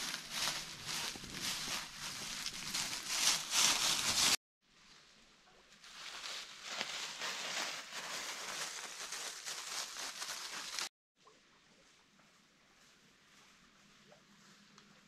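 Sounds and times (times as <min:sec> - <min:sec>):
footsteps crunching dry leaves: 0:00.0 - 0:04.4, 0:05.8 - 0:10.9.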